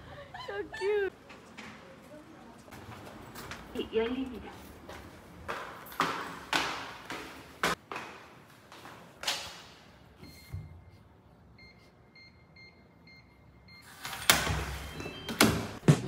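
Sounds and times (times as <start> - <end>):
keypad beeps: 14.8 - 15.5.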